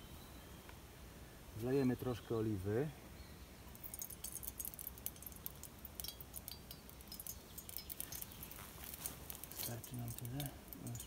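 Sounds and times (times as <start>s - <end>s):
oil crackling in a pot: 3.6s - 11.0s.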